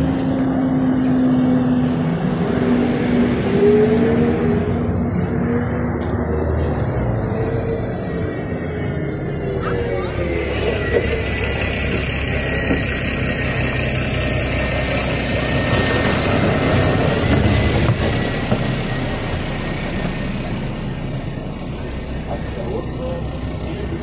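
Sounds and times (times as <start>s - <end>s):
bus diesel engine idling: 5.0s - 24.0s.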